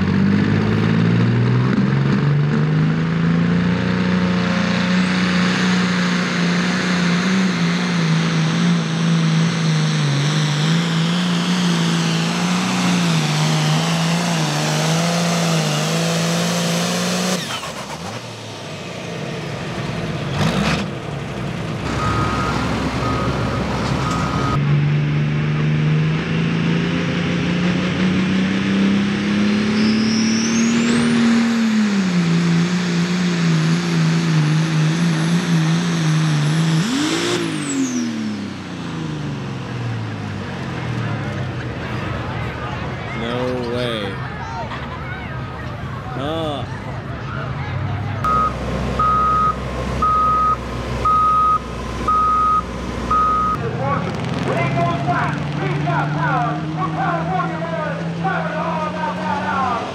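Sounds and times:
tractor engine at full throttle: 0:00.0 - 0:59.9
repeated beep: 0:21.9 - 0:24.6, 0:48.3 - 0:53.6.

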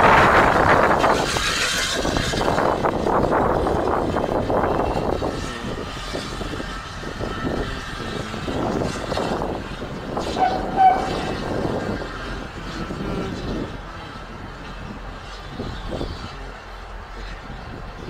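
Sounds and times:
steam locomotive chuffing: 0:00.0 - 0:18.0
steam whistle: 0:10.2 - 0:11.6.

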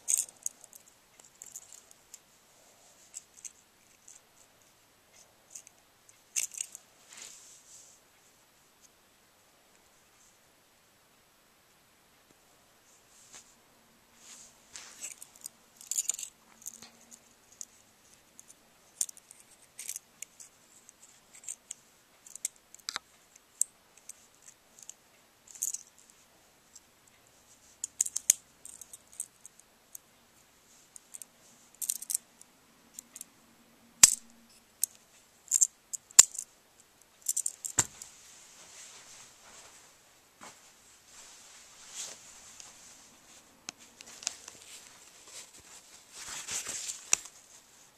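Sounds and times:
scratchy handling noise: 0:14.2 - 0:17.8, 0:41.2 - 0:47.7.

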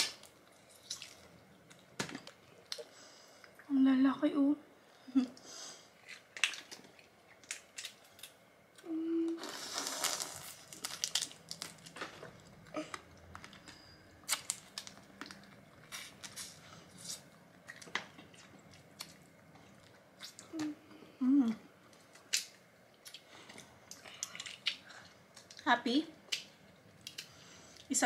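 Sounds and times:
tearing rustle: 0:09.4 - 0:11.9
prawn shells cracking: 0:09.5 - 0:12.3.

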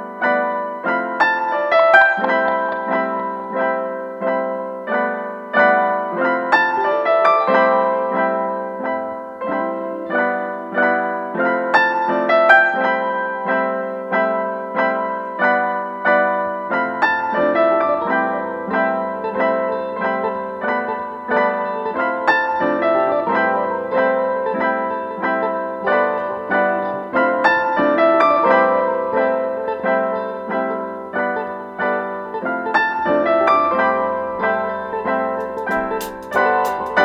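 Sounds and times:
piano chords: 0:00.0 - 0:37.0.

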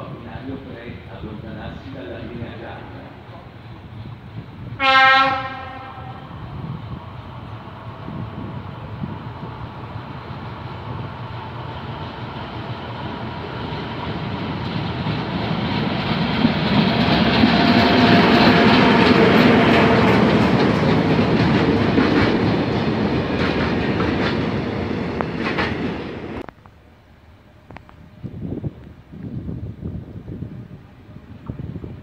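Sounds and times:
freight train wheels clattering: 0:07.4 - 0:26.4.

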